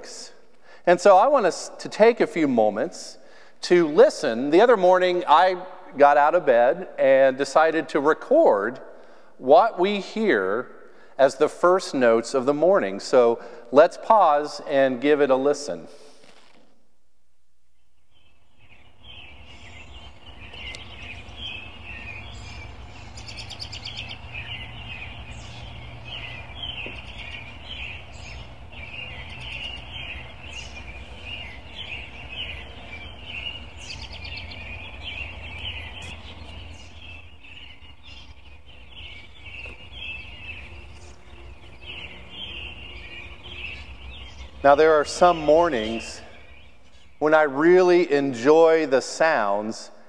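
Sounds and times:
songbirds chirping and trilling: 0.0s - 16.0s, 17.5s - 50.0s
steady low rumble: 18.5s - 44.6s.

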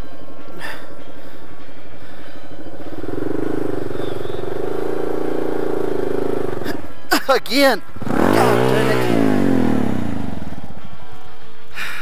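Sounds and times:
motorcycle engine running: 2.4s - 7.1s, 7.8s - 11.5s.

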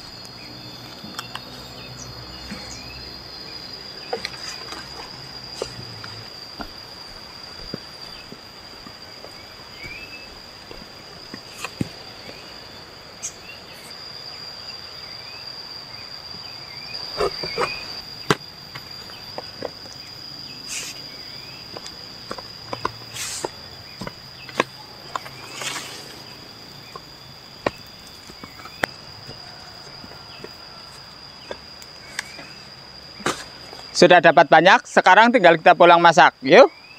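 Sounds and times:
rustling leaves: 0.0s - 34.0s
faint insect chirps: 0.0s - 36.9s
high-pitched insect drone: 0.0s - 36.9s
sharp knocks and thumps: 4.1s - 12.4s, 17.1s - 20.0s, 21.7s - 26.2s, 26.8s - 30.6s.

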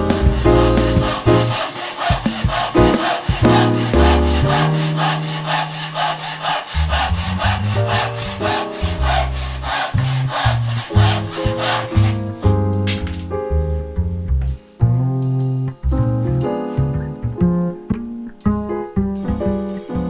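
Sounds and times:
handsaw cutting wood: 0.0s - 12.6s
background music: 0.0s - 20.0s.

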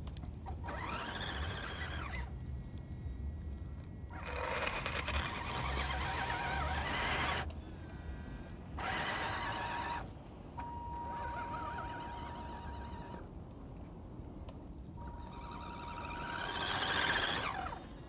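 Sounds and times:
electric motor whining: 0.6s - 2.3s, 4.1s - 7.5s, 8.8s - 13.2s, 15.0s - 18.0s.

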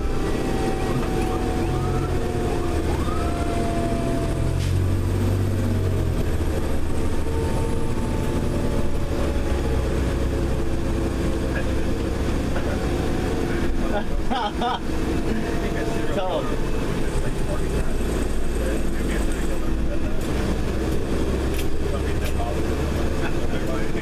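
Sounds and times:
faint mechanical siren winding down: 0.0s - 10.2s
diesel engine droning: 0.0s - 24.0s.

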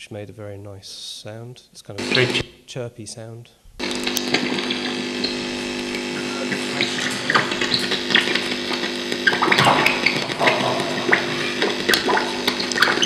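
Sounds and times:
steady electrical hum: 1.0s - 13.0s
scratchy chirpy crackles and clicks: 2.0s - 2.4s, 3.8s - 13.0s.

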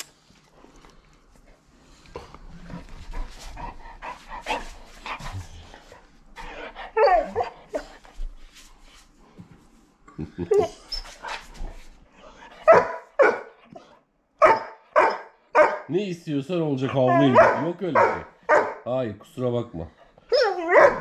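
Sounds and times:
puppy whining: 6.9s - 8.0s, 10.5s - 11.4s, 16.9s - 17.6s, 20.3s - 21.0s
puppy barking loudly: 12.6s - 13.6s, 14.4s - 15.9s, 17.1s - 18.9s, 20.3s - 21.0s.

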